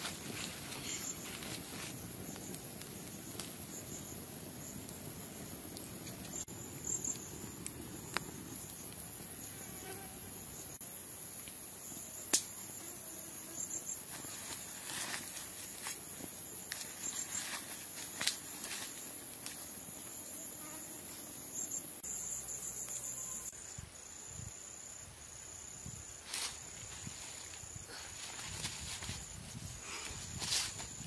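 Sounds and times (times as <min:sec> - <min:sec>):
wood fire crackling and popping: 0:00.0 - 0:09.3, 0:12.2 - 0:12.7, 0:14.1 - 0:19.7
insects chirring: 0:00.0 - 0:31.0.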